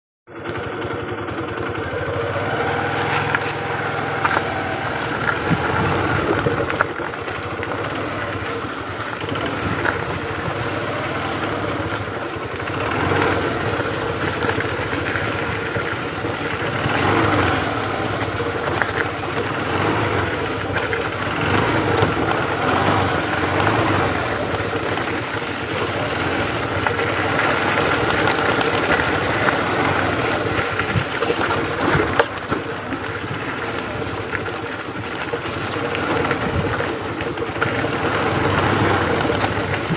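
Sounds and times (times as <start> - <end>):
vehicle engine rumble: 0.3 - 39.9
short high chirps: 9.8 - 11.1.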